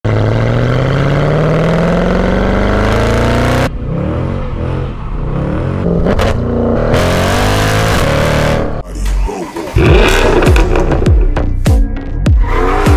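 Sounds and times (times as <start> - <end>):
car engine accelerating: 0.1 - 8.8, 9.7 - 11.5, 12.3 - 12.9
exhaust cracks: 9.8 - 11.6.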